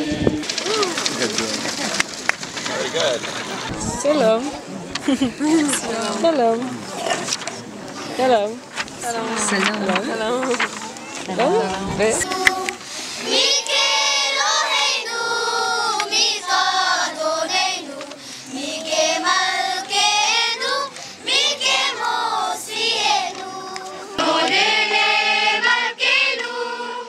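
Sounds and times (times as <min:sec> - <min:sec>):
children's choir singing: 0:10.5 - 0:27.0.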